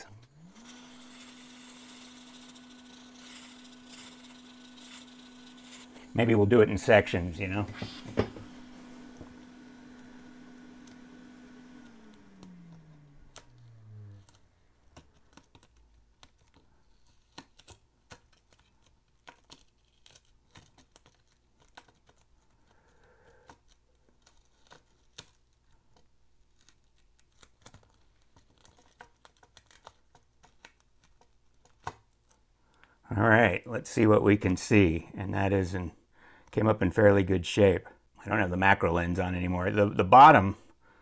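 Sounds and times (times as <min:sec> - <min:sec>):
adhesive sheet peeling crackles: 0:08.6 - 0:32.5.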